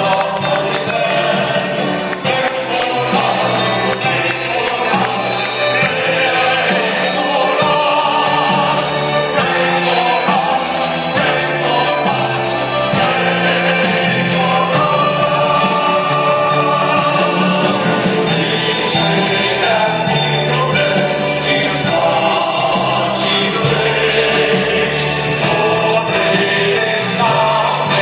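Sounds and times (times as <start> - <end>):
male choir singing: 0.0 - 28.0.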